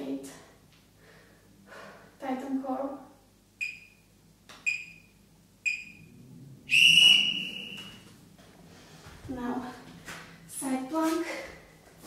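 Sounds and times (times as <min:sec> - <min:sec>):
short timer beeps: 0:03.6 - 0:04.0, 0:04.7 - 0:05.1, 0:05.7 - 0:06.1
long loud timer beep: 0:03.6 - 0:04.1, 0:04.7 - 0:06.1.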